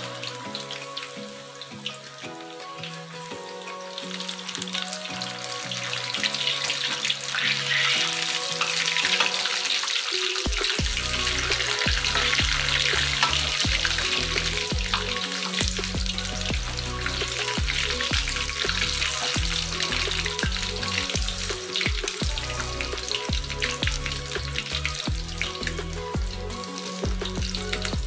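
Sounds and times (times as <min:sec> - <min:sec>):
food deep-frying in oil: 0:00.0 - 0:28.0
background music with bass: 0:10.4 - 0:28.0.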